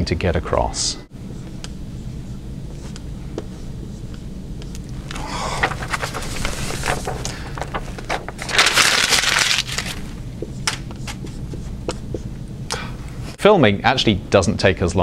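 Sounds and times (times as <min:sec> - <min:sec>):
eraser rubbing whiteboard: 0:01.3 - 0:04.8
marker strokes on whiteboard: 0:01.3 - 0:05.0, 0:10.4 - 0:12.3.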